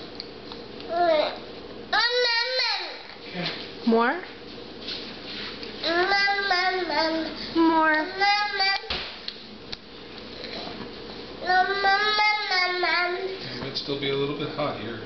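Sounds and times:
toddler singsong vocalizing: 11.4s - 13.4s.

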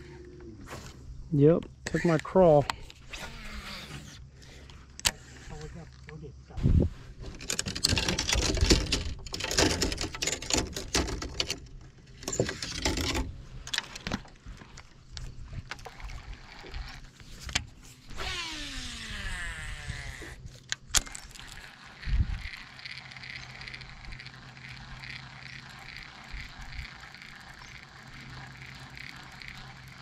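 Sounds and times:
fishing gear clicks and knocks: 7.3s - 17.8s.

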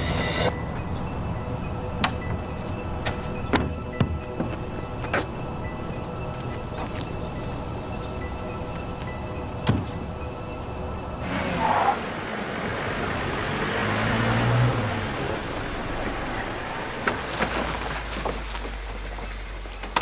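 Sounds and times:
car engine and tyre noise: 0.0s - 20.0s
tyre squeal: 15.6s - 18.8s.

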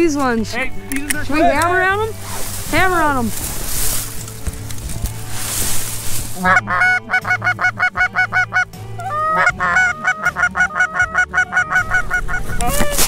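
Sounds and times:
goose call clucks and honks: 6.4s - 13.0s.

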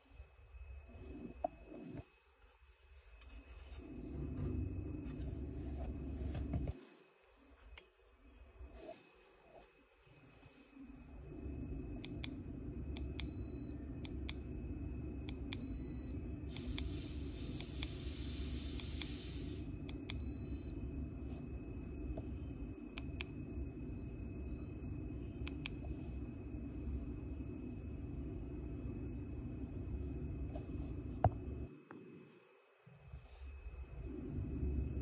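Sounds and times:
steady low hum: 0.0s - 35.0s
hiss: 16.5s - 19.7s.

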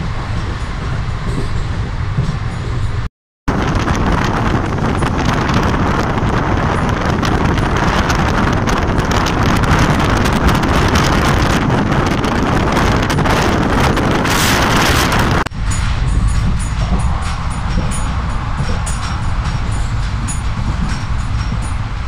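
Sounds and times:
train coach rumbling: 0.0s - 22.0s
wind on microphone: 0.0s - 22.0s.

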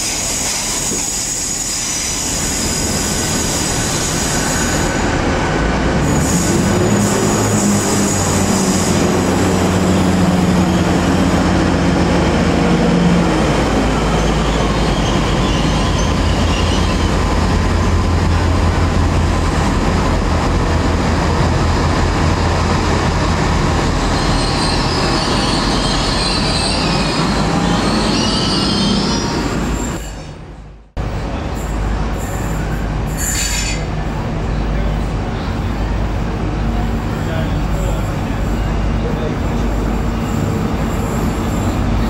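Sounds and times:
wheels squealing on rails: 0.0s - 5.3s, 6.0s - 18.9s, 24.0s - 30.4s, 31.3s - 34.7s, 36.8s - 42.0s
train rumbling: 0.0s - 42.0s.

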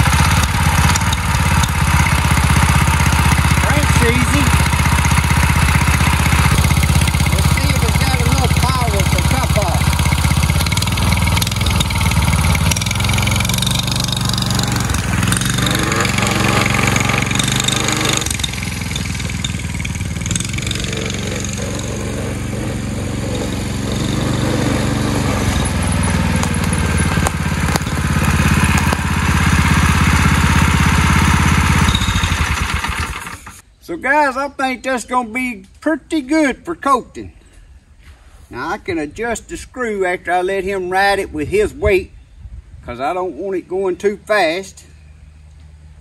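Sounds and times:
atv engine running: 0.0s - 33.6s.

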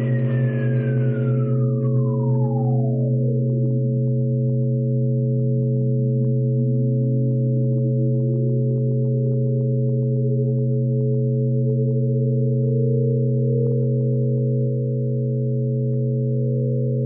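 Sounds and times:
electronic drone of pure tones: 0.0s - 17.0s.

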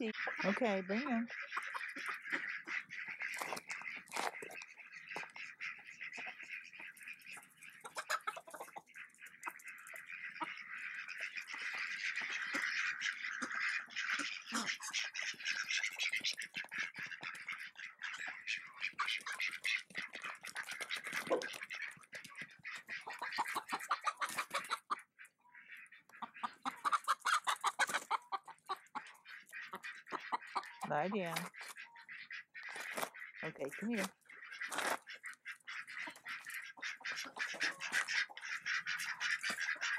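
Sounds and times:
chickens clucking and squawking: 0.0s - 39.9s.

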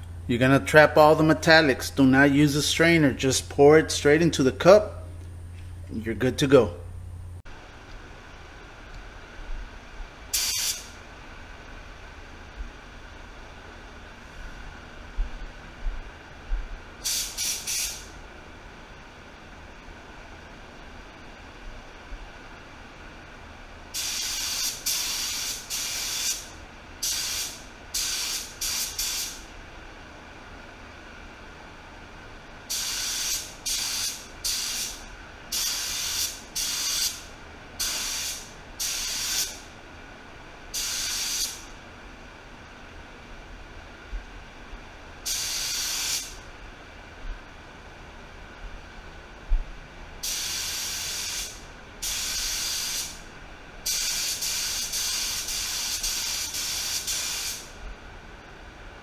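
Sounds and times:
spray gun hissing: 10.3s - 10.9s, 17.0s - 18.1s, 24.0s - 29.5s, 32.7s - 39.6s, 40.8s - 41.6s, 45.3s - 46.4s, 50.2s - 53.2s, 53.8s - 57.8s.

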